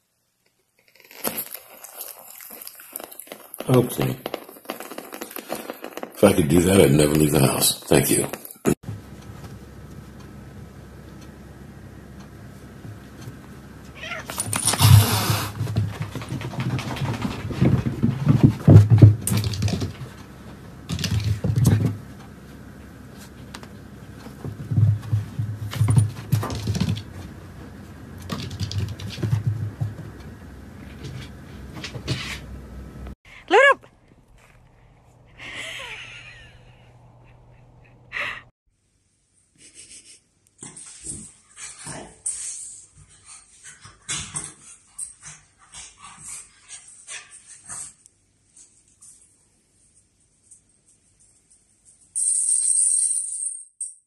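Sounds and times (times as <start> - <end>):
cat growling and yowling: 14.0 - 15.6
cat hissing: 14.0 - 15.6.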